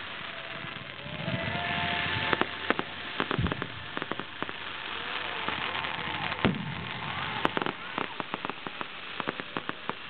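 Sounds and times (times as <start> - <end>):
fireworks crackling pops: 0.0 - 10.0
hiss: 0.0 - 10.0
loud firework bang: 0.8 - 4.6, 5.3 - 9.8.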